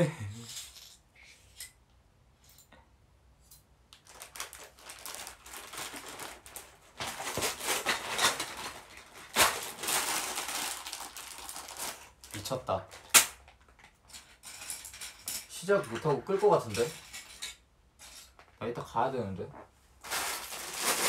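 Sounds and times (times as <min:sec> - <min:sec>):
paper and packaging rustling: 0:04.0 - 0:17.1, 0:20.0 - 0:21.0.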